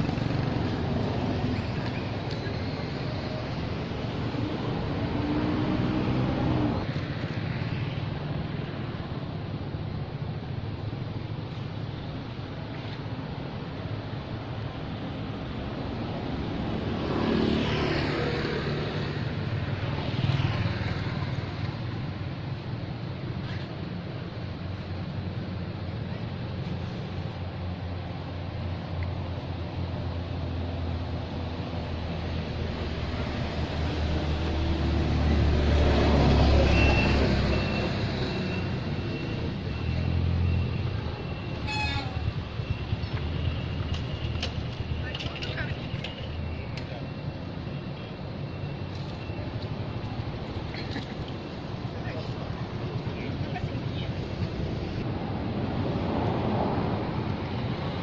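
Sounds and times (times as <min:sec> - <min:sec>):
vehicle engine humming: 0:00.0 - 0:58.0.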